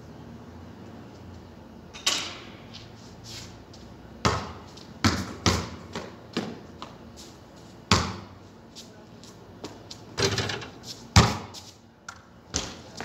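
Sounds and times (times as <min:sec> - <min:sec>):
basketball bouncing on concrete: 0:04.2 - 0:07.0, 0:07.9 - 0:08.3, 0:11.2 - 0:13.0.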